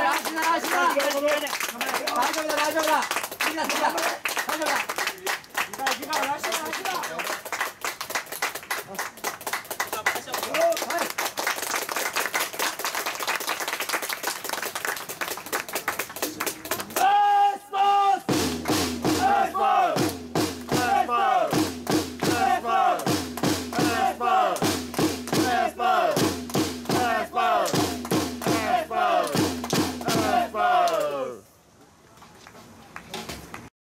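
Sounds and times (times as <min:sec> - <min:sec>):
supporters clapping: 0:00.0 - 0:17.2, 0:18.6 - 0:31.2
drumbeats: 0:18.3 - 0:30.7
crowd chanting: 0:19.1 - 0:21.6, 0:22.2 - 0:24.7, 0:25.3 - 0:26.3, 0:26.9 - 0:31.4.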